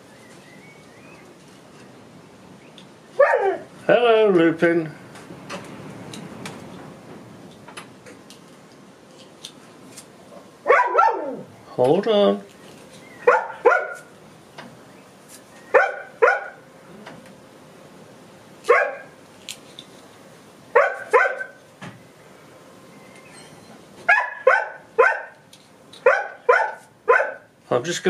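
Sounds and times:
dog barking: 3.2s - 3.7s, 10.7s - 11.5s, 13.2s - 14.1s, 15.7s - 16.6s, 18.7s - 19.2s, 20.7s - 21.6s, 24.1s - 25.4s, 26.0s - 27.5s.

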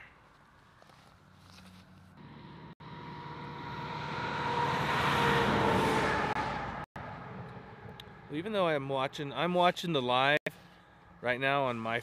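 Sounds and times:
vehicle passing by: 1.9s - 9.3s.

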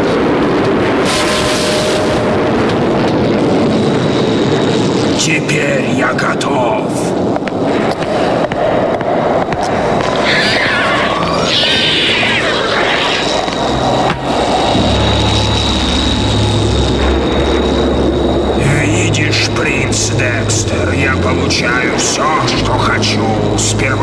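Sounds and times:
low steady hum: 0.0s - 24.0s
steady rushing rumble: 0.0s - 24.0s
sustained high tone: 10.1s - 24.0s.

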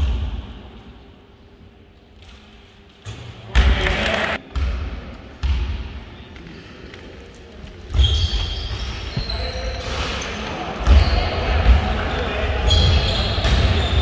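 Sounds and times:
basketball bouncing on gym floor: 4.5s - 6.0s.

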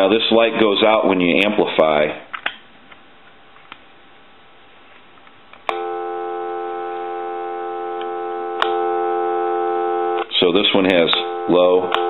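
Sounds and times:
telephone dial tone: 5.7s - 10.3s.

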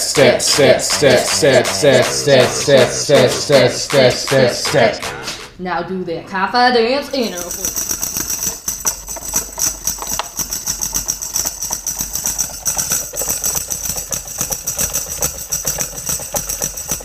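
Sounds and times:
plastic toy rattling on carpet: 7.4s - 17.0s.

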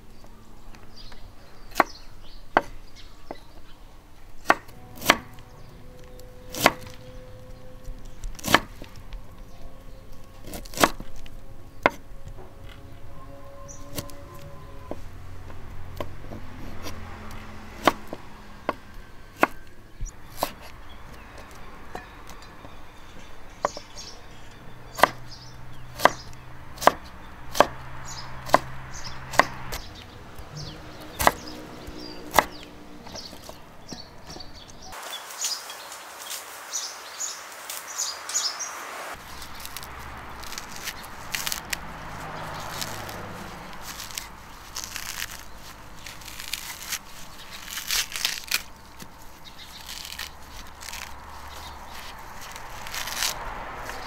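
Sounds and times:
coconut husk tearing: 0.0s - 54.0s
cleaver chopping on wooden board: 4.4s - 5.4s, 6.5s - 7.0s, 8.4s - 8.9s, 17.8s - 19.6s, 24.9s - 25.3s, 26.0s - 27.8s, 28.4s - 29.9s, 31.0s - 34.5s.

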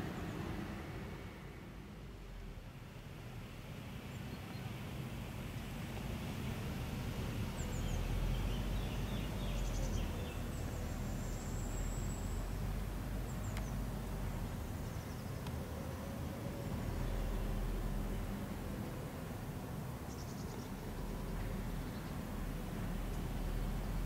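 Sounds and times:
small birds chirping: 7.5s - 15.7s.

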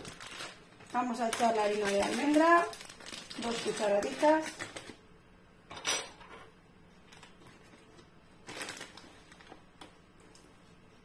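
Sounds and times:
plastic bag crinkling: 0.0s - 5.0s, 7.1s - 10.8s.

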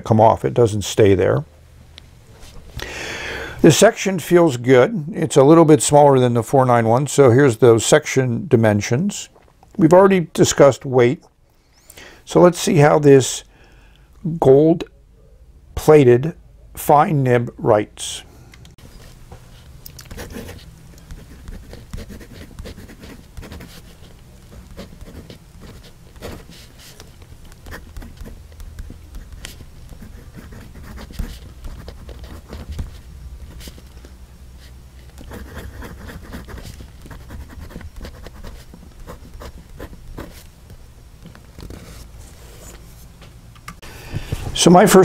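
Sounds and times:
fountain pen scratching paper: 20.1s - 33.8s, 35.2s - 40.4s.

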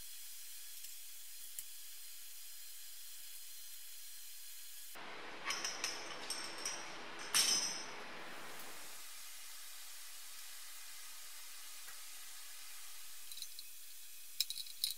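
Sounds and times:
faint steady hiss: 0.0s - 14.9s
metal hand tools clinking: 5.0s - 8.8s, 14.4s - 14.9s.

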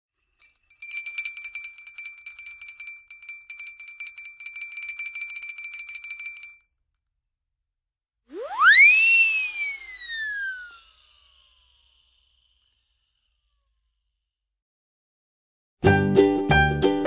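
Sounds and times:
bells jingling rapidly: 0.4s - 6.6s
high ringing tone: 8.4s - 10.9s.

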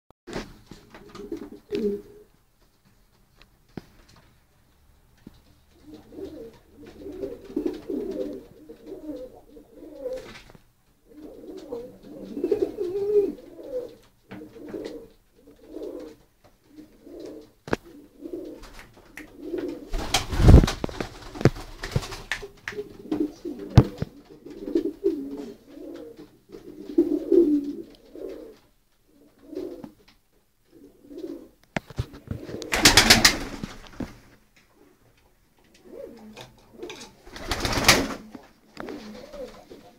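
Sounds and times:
pigeons cooing: 0.8s - 2.4s, 5.7s - 10.4s, 11.0s - 20.7s, 22.1s - 30.0s, 30.6s - 33.6s, 35.7s - 39.9s.

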